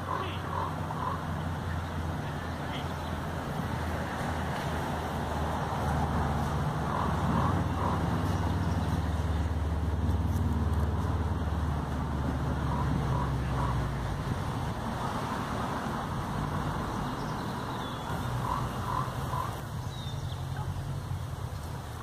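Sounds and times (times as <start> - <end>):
bird calling: 0.0 - 3.2, 6.8 - 9.4, 12.6 - 13.9, 16.8 - 20.8
distant traffic noise: 0.0 - 22.0
passing vehicle rumble: 0.0 - 22.0.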